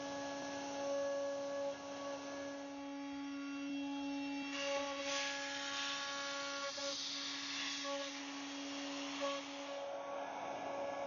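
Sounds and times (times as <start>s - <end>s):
router spindle whine: 0.0s - 11.0s
rough cutting hiss: 4.6s - 9.8s.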